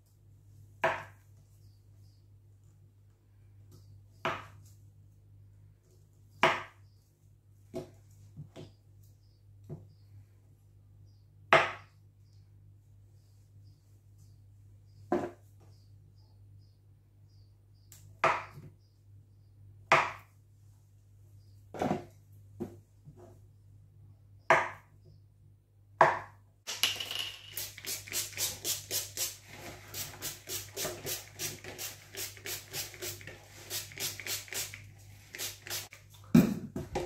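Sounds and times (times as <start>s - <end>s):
oil spray bottle spritzes: 26.7s - 36.0s.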